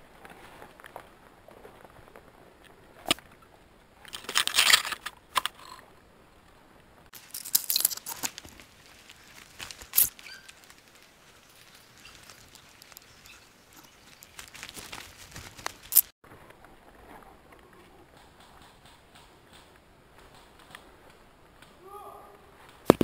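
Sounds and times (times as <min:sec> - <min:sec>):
twigs snapping: 0:04.0 - 0:05.8, 0:07.1 - 0:16.1
footsteps crunching dry leaves: 0:07.1 - 0:16.1
brushing through undergrowth: 0:07.1 - 0:16.2.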